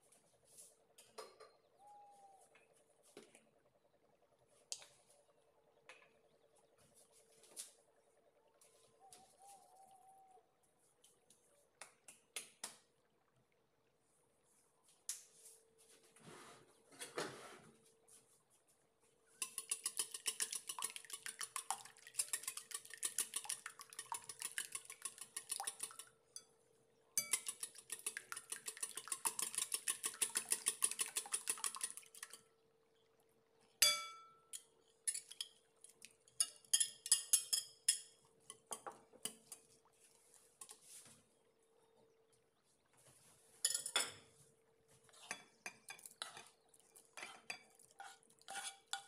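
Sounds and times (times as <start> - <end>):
slow clinks of stirring: 19.3 - 41.0, 43.6 - 44.4, 45.1 - 49.0
whisk clicking against glass bowl: 19.4 - 26.5, 27.2 - 32.4.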